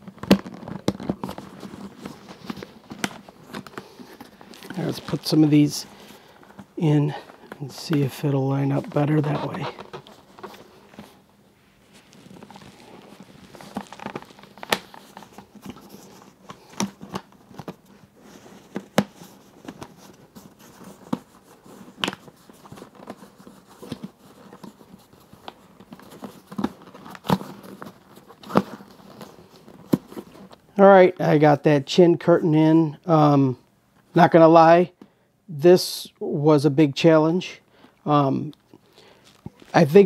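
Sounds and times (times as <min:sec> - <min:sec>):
fabric rustling: 0:00.0 - 0:30.6.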